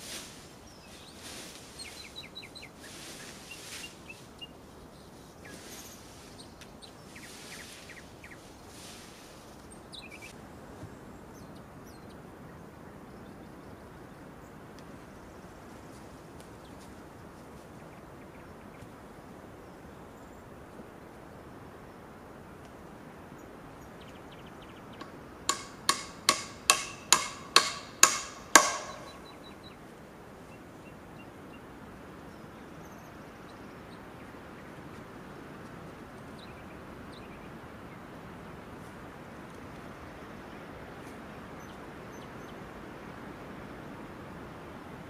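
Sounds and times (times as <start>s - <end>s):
outdoor hush: 0.0s - 43.7s
hammer blows on metal: 25.0s - 29.4s.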